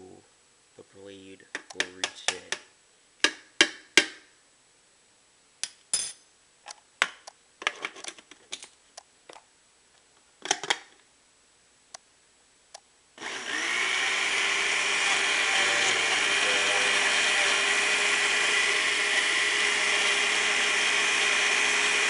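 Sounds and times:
blender motor running: 0:13.2 - 0:22.0.

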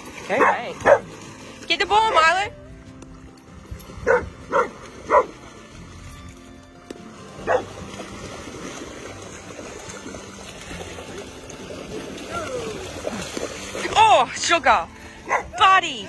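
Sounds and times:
dogs splashing in water: 0:00.0 - 0:16.0
dog barking: 0:00.4 - 0:01.1, 0:04.0 - 0:05.3, 0:07.4 - 0:07.7, 0:15.3 - 0:15.6.

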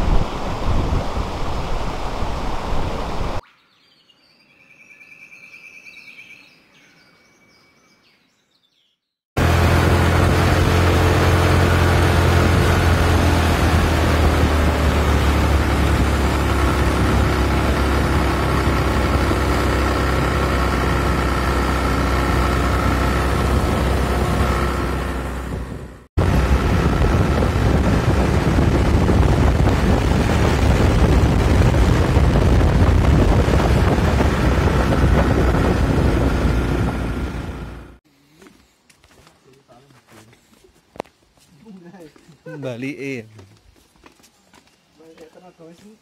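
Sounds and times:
wind on microphone: 0:00.0 - 0:03.4, 0:25.4 - 0:37.4
motorcycle engine running: 0:09.4 - 0:38.0.

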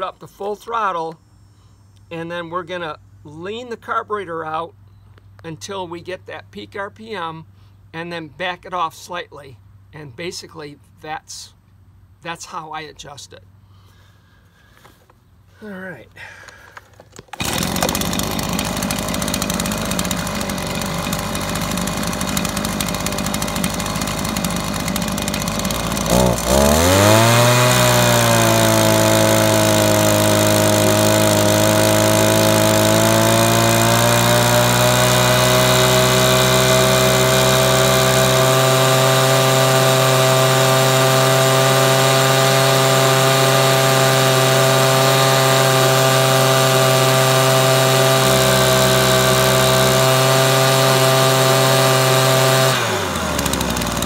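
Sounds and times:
leaf blower engine revving: 0:16.2 - 0:54.0.

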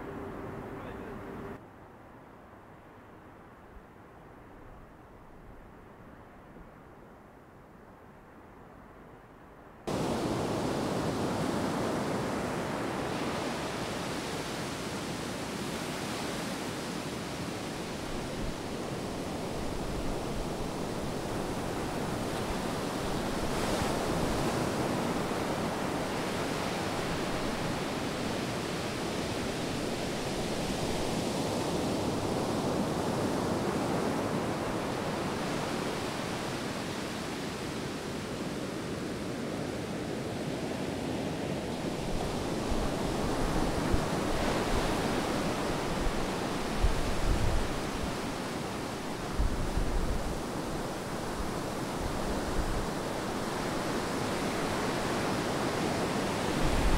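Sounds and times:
low wind rumble: 0:00.0 - 0:14.2, 0:40.6 - 0:56.9
waves breaking on beach: 0:09.9 - 0:56.9.

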